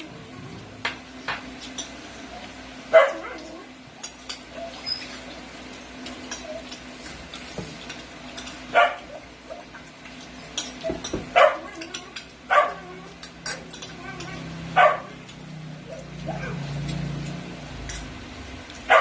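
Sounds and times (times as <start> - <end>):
cutlery clicking on plates: 13.2 - 14.4.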